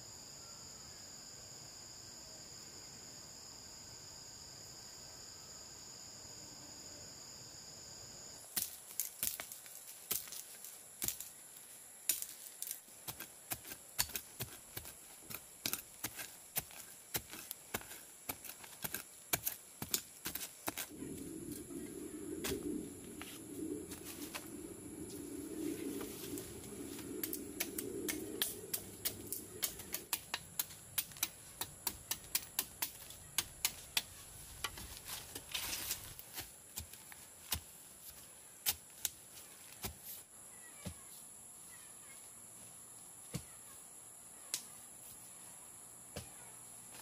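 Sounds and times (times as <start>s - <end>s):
insects trilling: 0.0s - 39.7s
hand tool digging into soil: 12.1s - 21.0s.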